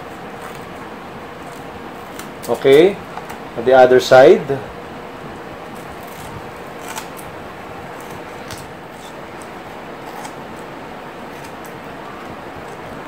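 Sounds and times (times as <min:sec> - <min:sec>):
scissors snipping: 0:05.7 - 0:07.3, 0:08.0 - 0:10.7.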